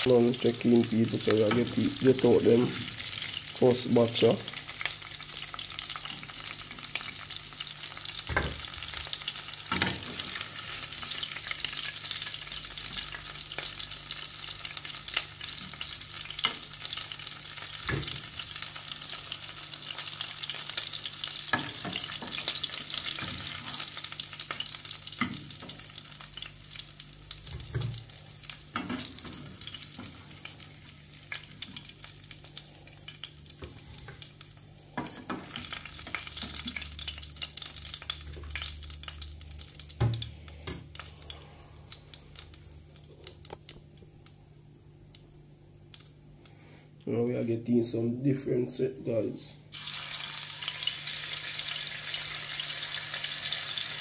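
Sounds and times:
meat sizzling in hot oil: 0.0s - 43.7s, 49.7s - 54.0s.

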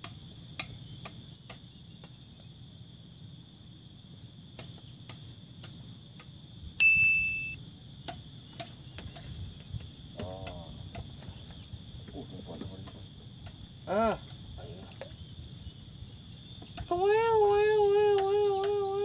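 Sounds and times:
high-pitched insect chorus: 0.0s - 19.0s
high ding: 6.8s - 7.6s.

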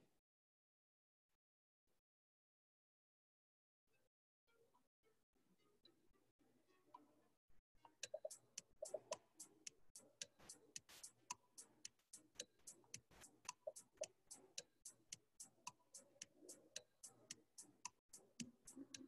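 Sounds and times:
countdown timer ticking: 7.9s - 19.0s
quiz game timer music: 8.0s - 19.0s.

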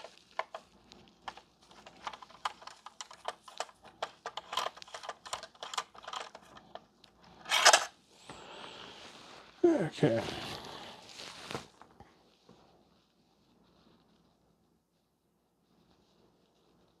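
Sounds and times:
screwdriver clicking on metal parts: 0.0s - 0.6s, 1.3s - 6.6s, 7.5s - 7.9s.

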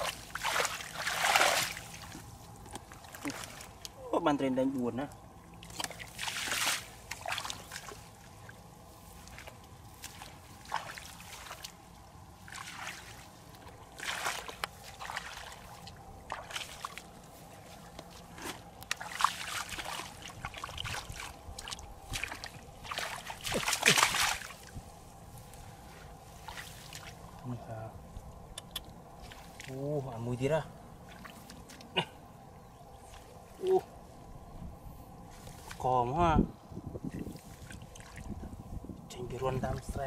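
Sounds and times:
hands splashing water: 0.0s - 3.8s, 5.6s - 8.1s, 17.7s - 24.7s
feet splashing through muddy water: 0.0s - 3.9s, 5.6s - 27.5s, 29.0s - 34.0s, 35.2s - 35.9s, 37.0s - 38.6s.

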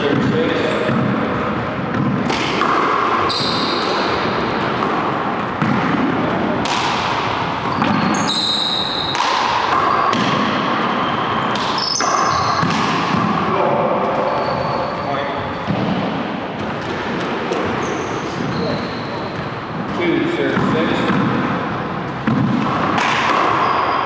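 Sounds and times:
sneakers squeaking on hardwood: 3.2s - 6.2s, 7.3s - 20.0s, 23.4s - 24.0s.

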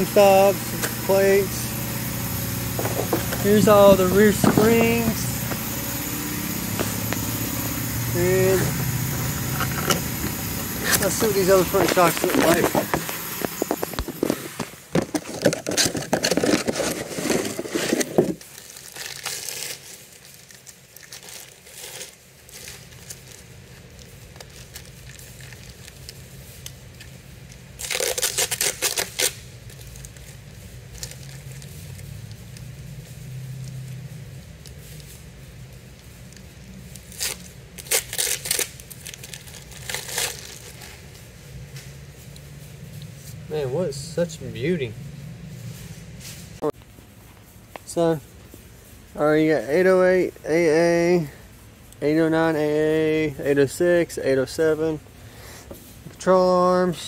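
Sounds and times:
tape being peeled: 0.0s - 35.2s, 35.8s - 43.4s
packaging crinkling and tearing: 8.3s - 32.7s, 36.3s - 41.3s.

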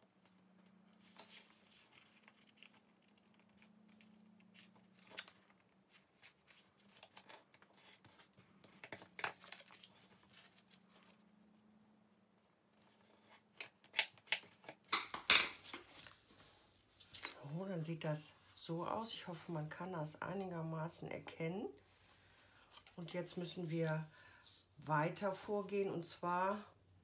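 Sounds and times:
faint low hum: 0.0s - 13.7s
paper folding and rustling: 0.1s - 11.6s, 12.8s - 17.7s.

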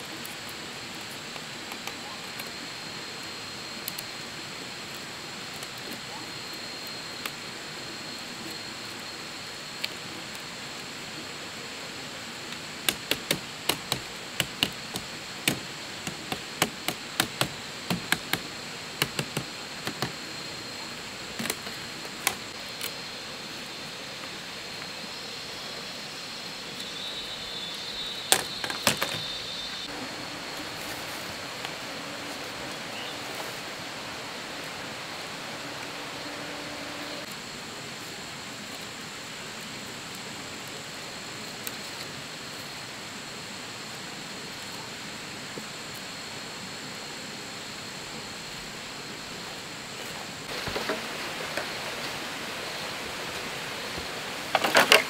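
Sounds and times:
insect drone: 0.0s - 55.0s
bamboo strips clicking: 12.8s - 20.2s.

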